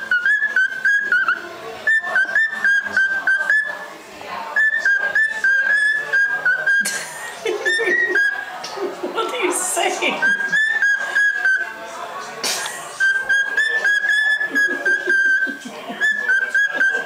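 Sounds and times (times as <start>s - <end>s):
cockatiel whistling: 0.0s - 3.9s, 4.5s - 7.0s, 7.6s - 8.4s, 10.2s - 11.8s, 12.9s - 17.0s.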